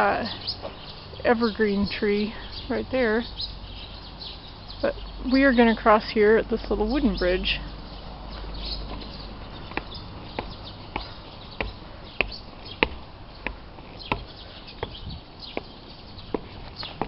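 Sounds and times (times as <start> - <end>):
footsteps on wooden planks: 8.3 - 17.0.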